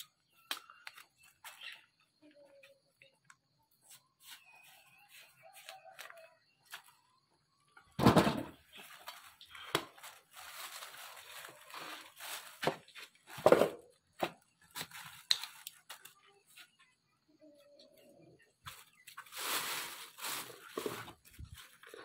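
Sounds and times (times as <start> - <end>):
plastic bag crackling: 9.8 - 12.9, 19.2 - 22.0.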